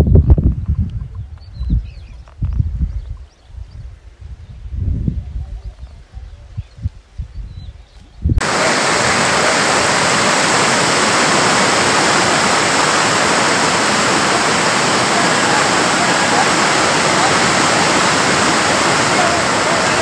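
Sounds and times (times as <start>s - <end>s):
floodwater rushing: 8.4s - 20.0s.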